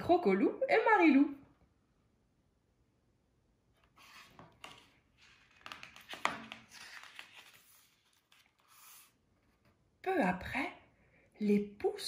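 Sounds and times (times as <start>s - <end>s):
book pages rustling: 3.7s - 9.9s.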